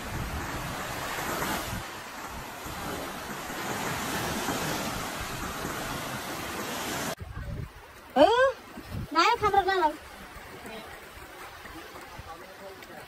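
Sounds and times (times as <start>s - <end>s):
wind buffeting microphone: 0.0s - 10.4s
waves washing up a beach: 0.0s - 13.0s.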